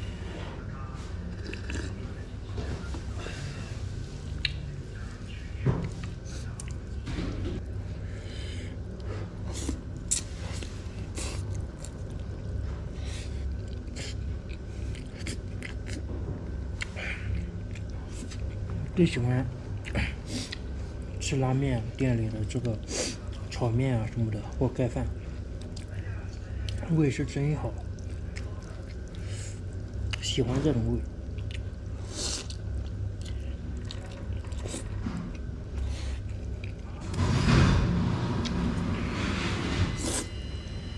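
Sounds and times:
low room hum: 0:00.0 - 0:40.9
person chewing: 0:01.3 - 0:02.0, 0:09.5 - 0:16.1, 0:16.7 - 0:18.6, 0:27.8 - 0:30.2, 0:31.2 - 0:37.0.

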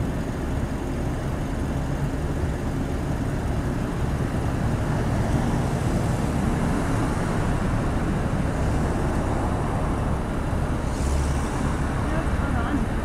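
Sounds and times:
diesel truck engine rumble: 0:00.0 - 0:13.0
road noise: 0:00.0 - 0:13.0.

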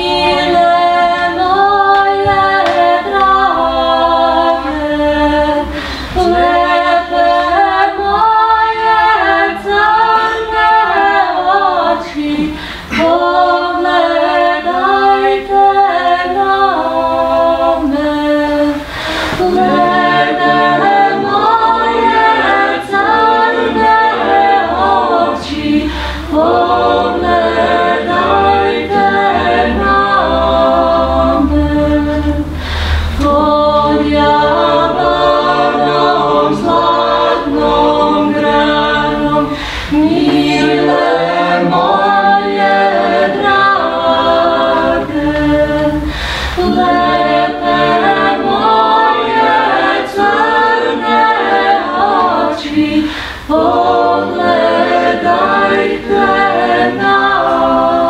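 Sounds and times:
a cappella vocal ensemble: 0:00.0 - 0:58.0.

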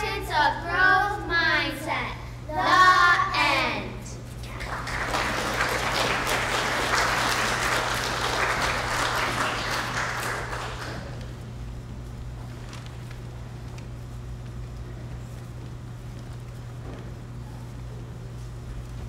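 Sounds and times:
low electrical hum: 0:00.0 - 0:19.0
audience applauding: 0:04.5 - 0:11.4.

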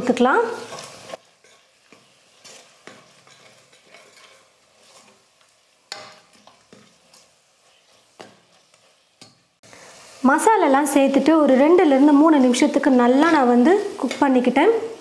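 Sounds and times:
light sizzle in oil: 0:00.0 - 0:15.0
spoon scraping pot: 0:00.6 - 0:09.5.

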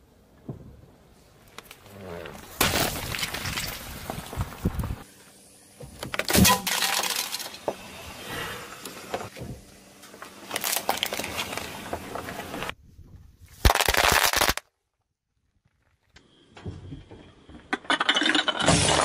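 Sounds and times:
plastic crackling under tyre: 0:10.2 - 0:12.8.

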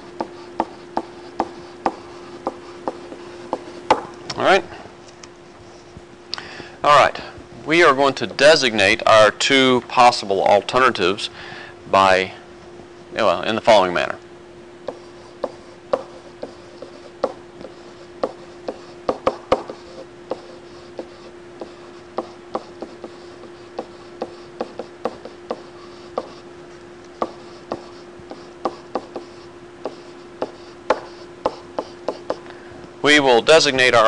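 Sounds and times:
pen scratching on paper: 0:00.0 - 0:03.9, 0:14.9 - 0:26.4, 0:27.2 - 0:32.4
steady hum: 0:00.0 - 0:34.0.

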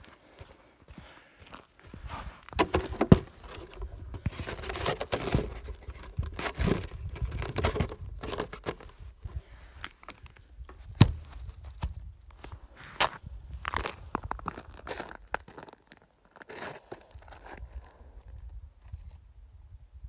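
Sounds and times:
footsteps crunching in snow: 0:09.9 - 0:18.0.

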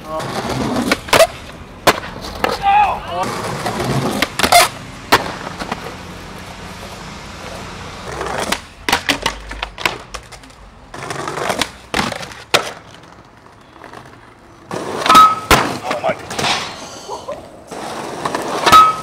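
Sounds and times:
skateboard clacking and grinding: 0:00.0 - 0:19.0
skateboard wheels rolling: 0:00.0 - 0:19.0.

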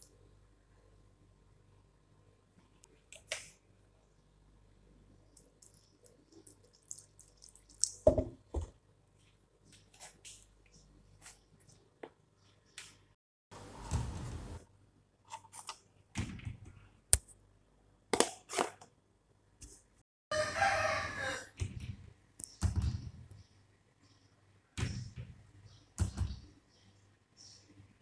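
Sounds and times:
long crowing call: 0:20.3 - 0:21.5.

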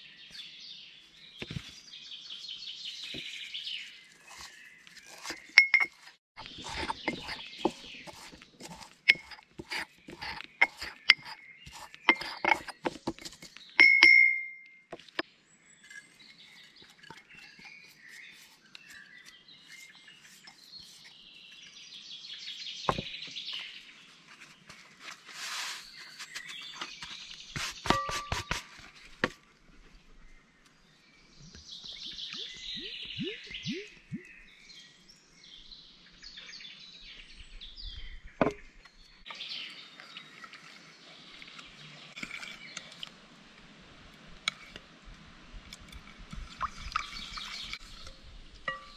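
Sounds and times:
birds chirping: 0:00.0 - 0:24.2, 0:29.9 - 0:42.9
utensils and glass clinking: 0:05.1 - 0:15.2, 0:48.7 - 0:48.9.

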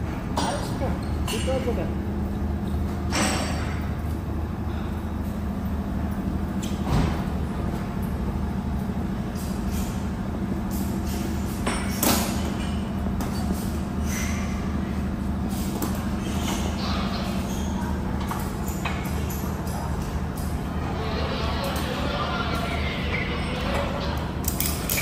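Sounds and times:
heavy equipment engine running: 0:01.6 - 0:25.0.

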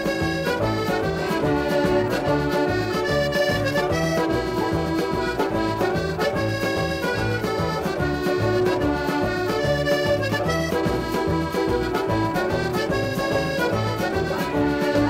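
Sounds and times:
button accordion tune: 0:00.0 - 0:15.0.

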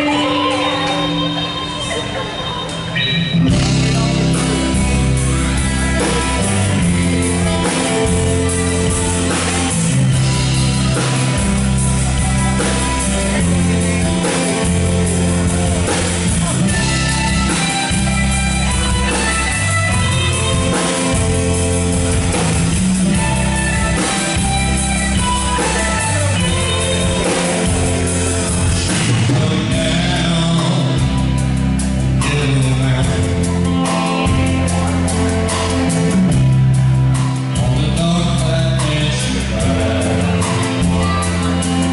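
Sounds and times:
man singing: 0:00.0 - 0:21.5, 0:23.1 - 0:41.9
bass guitar: 0:00.0 - 0:41.9
drum kit: 0:00.0 - 0:41.9
electric guitars: 0:00.0 - 0:41.9.

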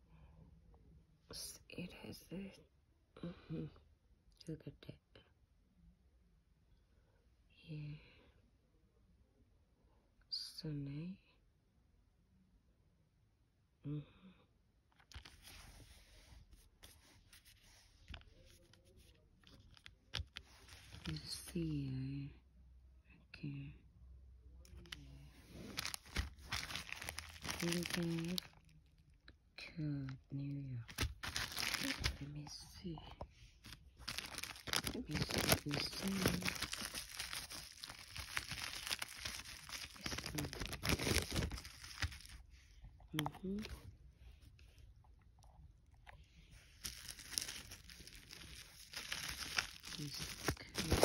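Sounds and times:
cardboard card rustling: 0:15.0 - 0:21.4, 0:24.8 - 0:28.5, 0:30.9 - 0:32.3, 0:33.6 - 0:42.4, 0:46.6 - 0:51.0
plastic bag crinkling: 0:24.8 - 0:28.7, 0:30.9 - 0:32.3, 0:33.6 - 0:42.4, 0:46.7 - 0:51.0.

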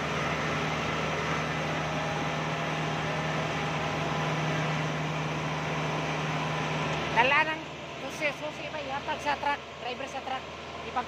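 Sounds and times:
harvester engine droning: 0:00.0 - 0:11.0.

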